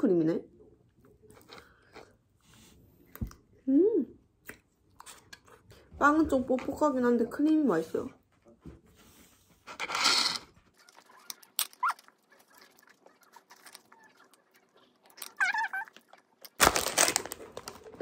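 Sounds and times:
dog whining: 10.7 - 16.2
plastic crinkling: 10.8 - 18.0.

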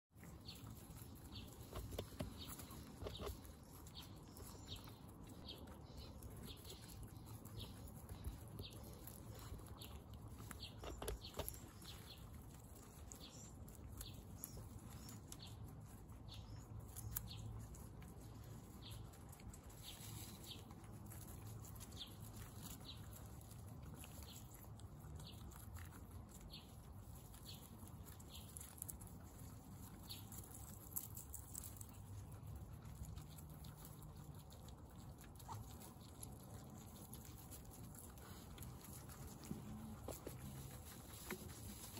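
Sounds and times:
guinea pigs chewing and crunching: 0.0 - 41.9
guinea pig high chirps: 0.1 - 41.9.

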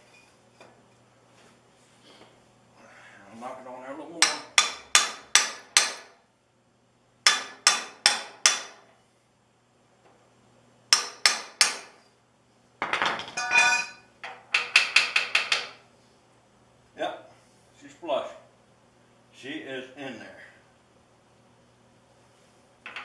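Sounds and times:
hammer striking metal pipe: 4.2 - 6.2, 7.2 - 8.8, 10.9 - 12.0
metallic clatter: 12.8 - 14.0.

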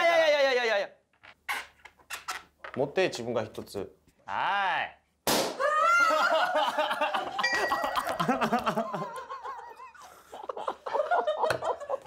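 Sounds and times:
men laughing: 5.7 - 12.0.

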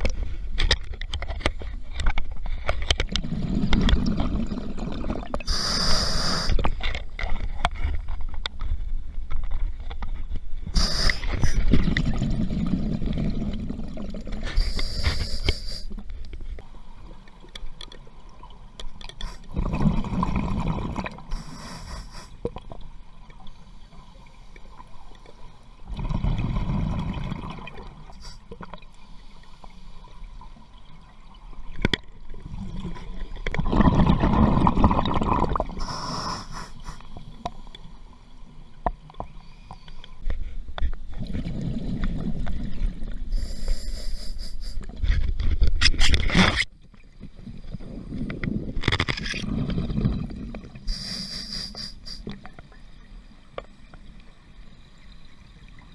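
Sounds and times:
exhaled bubbles rumbling: 3.0 - 5.5, 10.6 - 14.8, 19.3 - 21.8, 25.8 - 28.2, 32.2 - 36.4, 41.1 - 43.4, 47.2 - 51.0
regulator inhale hiss: 5.5 - 6.7, 10.8 - 11.6, 14.5 - 16.0, 21.3 - 22.4, 35.8 - 37.7, 43.3 - 44.9, 50.9 - 52.4.

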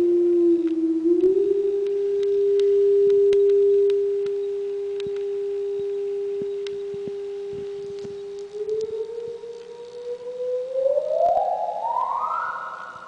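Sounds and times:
sine wave test tone with reverb: 0.0 - 13.0.

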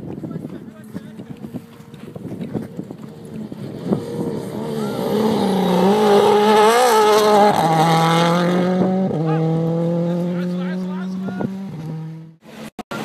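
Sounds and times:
rally car engine revving: 2.8 - 13.0.

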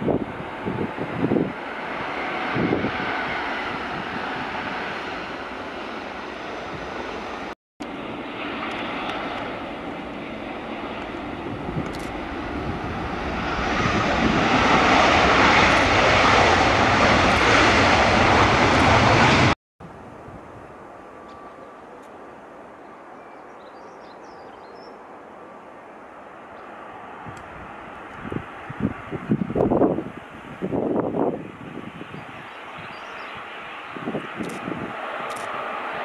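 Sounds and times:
jet engine roar: 0.0 - 23.1, 25.0 - 36.0
turboprop aircraft engine: 0.0 - 36.0.

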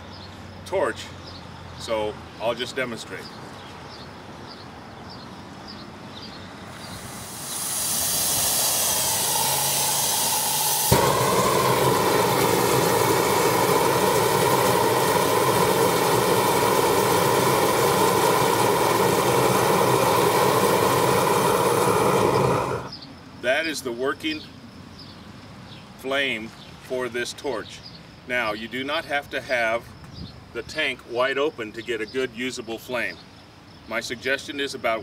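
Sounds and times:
propane torch hissing: 6.7 - 23.0.

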